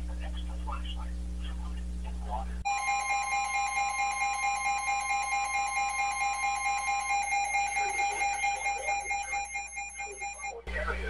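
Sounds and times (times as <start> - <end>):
fast pulsing alarm beeps: 2.7 - 10.6
steady alert tone: 2.7 - 10.6.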